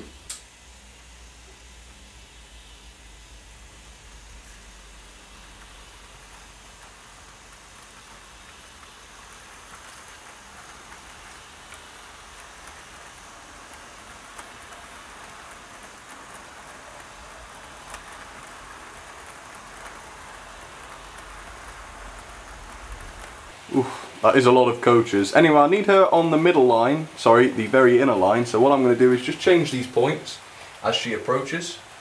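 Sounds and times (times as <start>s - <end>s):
model train wheels rolling on rail: 2.2s - 32.0s
faint clicks: 5.5s - 23.4s.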